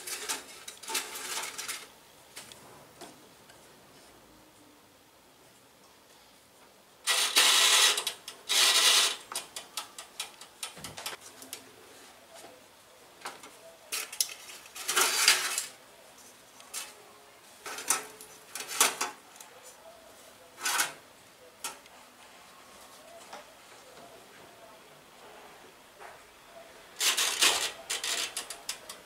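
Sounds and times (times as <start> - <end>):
scraping and rustling: 0.0 - 4.2, 7.1 - 21.0, 26.9 - 29.0.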